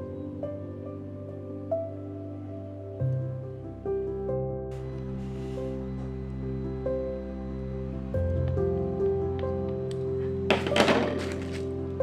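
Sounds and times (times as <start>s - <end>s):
soft acoustic music: 4.7s - 12.0s.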